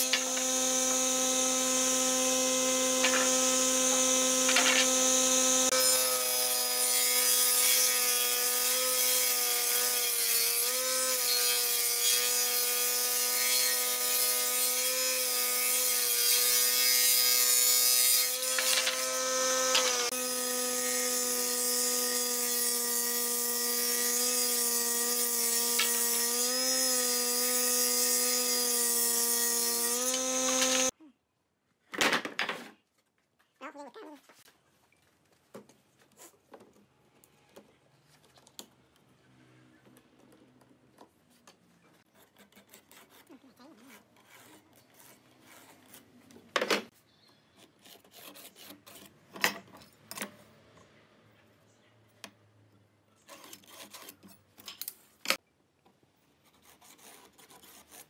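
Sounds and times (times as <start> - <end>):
woodworking machine motor hum: 0.0 - 5.7, 18.3 - 20.7, 29.9 - 30.9.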